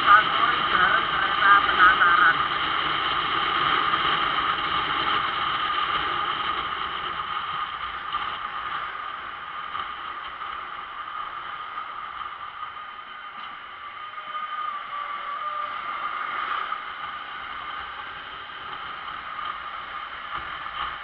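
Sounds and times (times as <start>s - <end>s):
traffic: 0.0s - 21.0s
wind: 0.0s - 21.0s
passenger train rolling: 7.3s - 21.0s.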